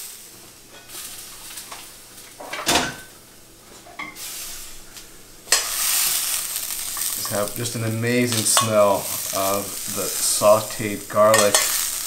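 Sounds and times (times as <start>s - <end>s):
green beans sizzling: 0.0s - 12.0s
cookware clattering: 2.4s - 3.2s, 11.2s - 11.9s
tongs clanking in metal pan: 5.5s - 12.0s.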